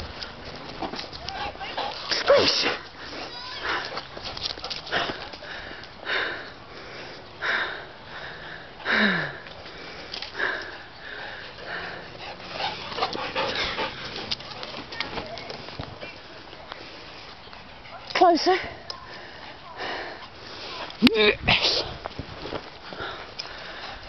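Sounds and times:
dog sniffing and breathing hard: 0.7 - 7.0, 9.6 - 16.2.

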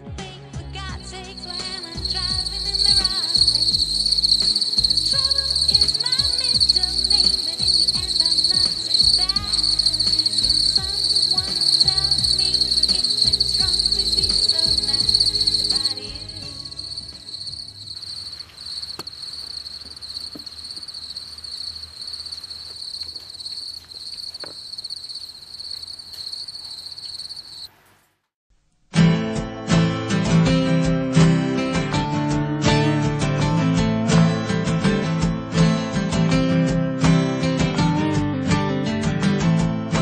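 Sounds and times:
music: 0.0 - 19.0, 28.9 - 40.0
crickets trilling: 1.1 - 27.8
faint clicks: 18.0 - 26.7.

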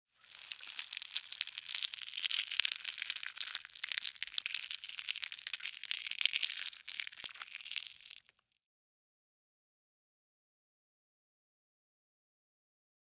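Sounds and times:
maggots squirming crackling: 0.2 - 8.3.

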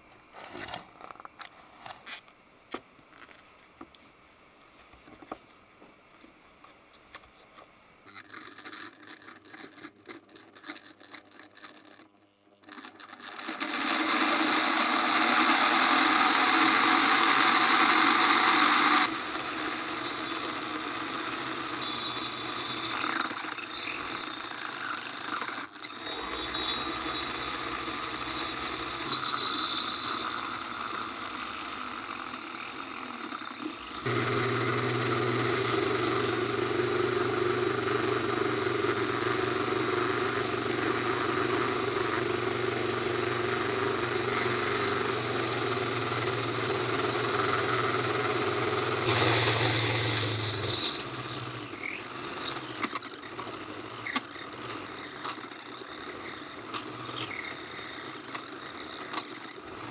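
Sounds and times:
plastic parts rattling and clicking: 8.1 - 14.6, 49.1 - 59.7
rotary tool whirring: 8.1 - 59.9.

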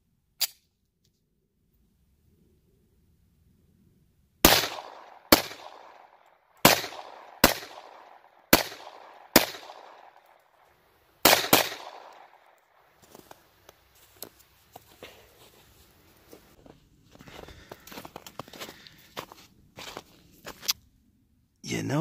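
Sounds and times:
pistol shots echoing: 4.4 - 10.5, 11.2 - 12.9.

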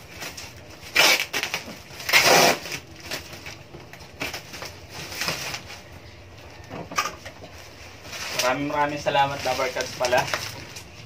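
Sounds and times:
packing tape ripping off box: 0.1 - 3.6.

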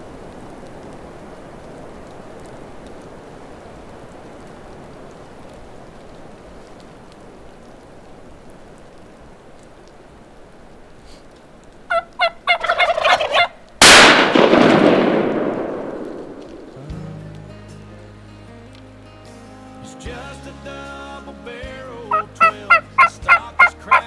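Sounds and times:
faint outdoor hush: 10.8 - 12.6
turkey gobbling: 11.9 - 13.6, 22.1 - 24.0
shotgun blast echoing: 13.8 - 16.8.

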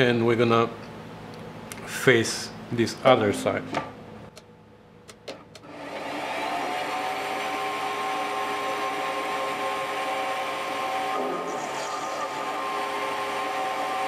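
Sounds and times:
lathe motor whining: 5.6 - 14.0.

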